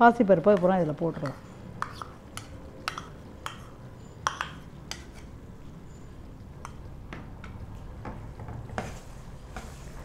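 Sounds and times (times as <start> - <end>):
spoon and bowl clinking on pan: 1.2 - 5.4.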